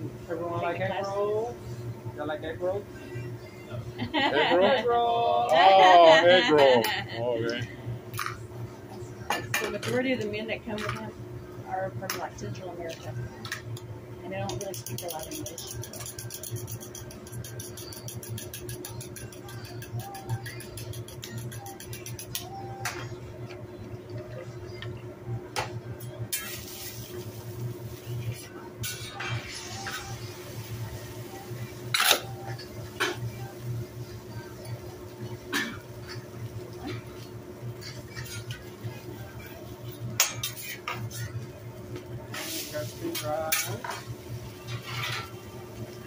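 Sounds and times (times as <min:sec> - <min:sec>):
low steady hum: 0:00.0 - 0:46.0
metal spatula clicking on griddle: 0:14.5 - 0:22.4
liquid sizzling on hot griddle: 0:26.3 - 0:31.9, 0:42.3 - 0:46.0
metal spatula scraping on griddle: 0:44.6 - 0:45.4.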